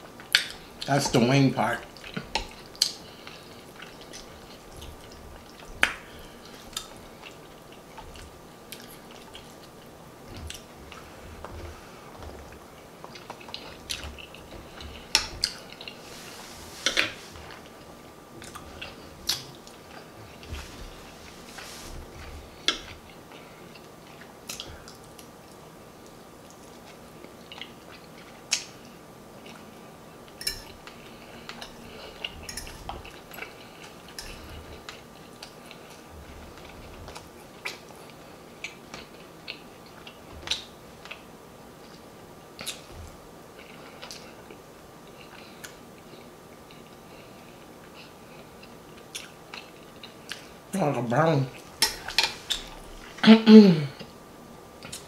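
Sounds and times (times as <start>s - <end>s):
chewing and lip-smacking: 1.9s - 11.6s, 18.4s - 20.5s, 22.5s - 29.7s, 30.3s - 43.0s, 43.6s - 50.6s.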